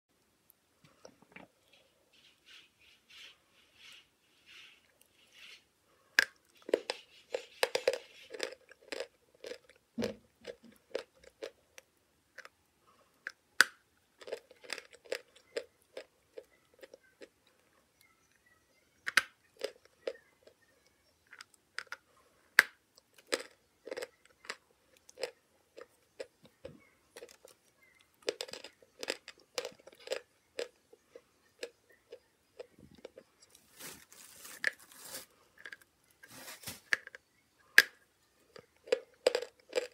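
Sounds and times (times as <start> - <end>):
chalk being chewed: 6.2 - 9.8.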